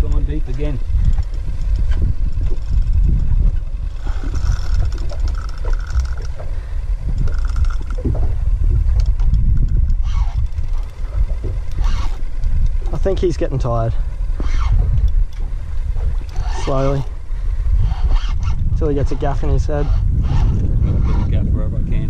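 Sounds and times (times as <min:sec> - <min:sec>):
water slapping against hull: 0:00.0 - 0:21.3
wind buffeting microphone: 0:00.0 - 0:22.0.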